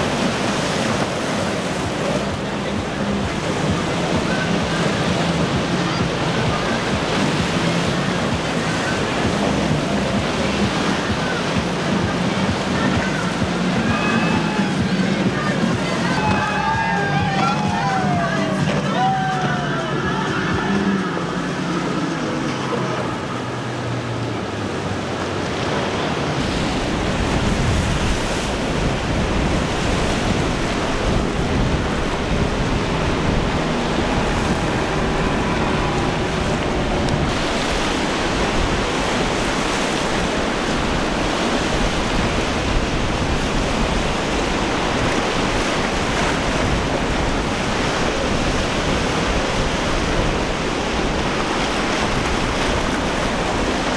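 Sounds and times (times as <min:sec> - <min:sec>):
waves breaking: 0:00.0 - 0:53.9
wind on microphone: 0:24.8 - 0:53.9.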